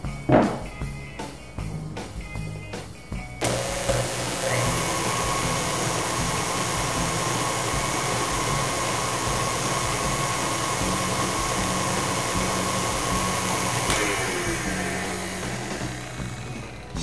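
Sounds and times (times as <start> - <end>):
stand mixer motor whining: 3.4 - 17.0.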